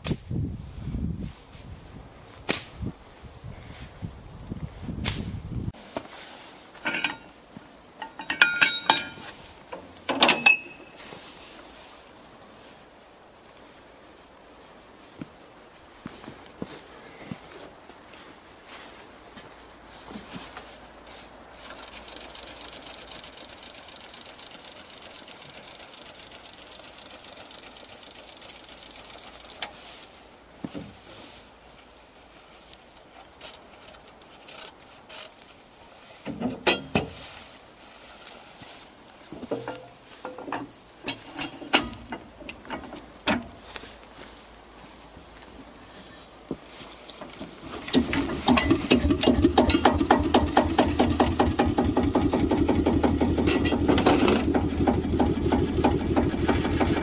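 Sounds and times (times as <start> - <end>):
metallic clicks and clanks: 6.8 - 7.4, 8.0 - 11.0, 36.2 - 37.2, 39.4 - 43.6, 47.8 - 57.0.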